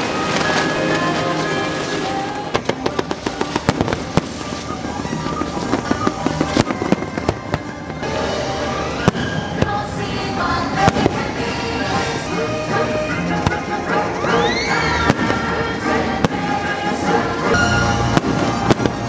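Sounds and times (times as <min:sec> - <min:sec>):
fireworks popping and crackling: 0:00.0 - 0:10.0, 0:10.6 - 0:12.3, 0:15.0 - 0:17.0, 0:17.6 - 0:19.0
music soundtrack: 0:00.0 - 0:19.0.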